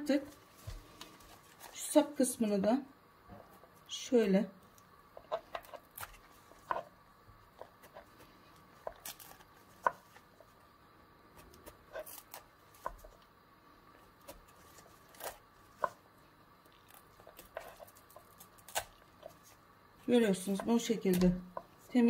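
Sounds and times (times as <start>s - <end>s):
faint steady hum: 0.0s - 22.0s
knife cutting artichoke leaves: 5.2s - 7.0s, 7.6s - 10.5s, 11.3s - 13.2s, 14.2s - 16.0s, 16.7s - 22.0s.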